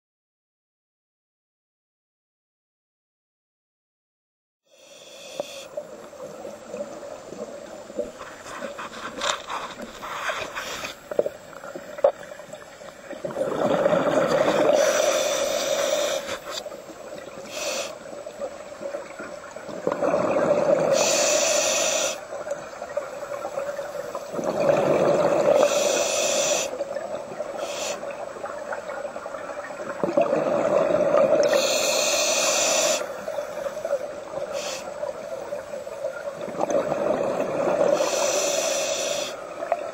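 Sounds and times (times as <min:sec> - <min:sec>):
diver exhaling bubbles: 0:13.2 - 0:16.0, 0:19.7 - 0:21.3, 0:24.3 - 0:26.0, 0:30.0 - 0:32.1, 0:36.4 - 0:38.1.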